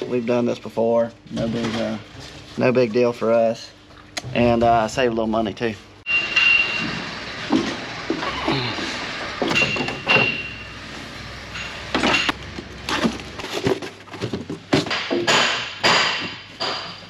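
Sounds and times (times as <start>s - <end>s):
plastic parts knocking and rattling: 12.1s - 15.6s.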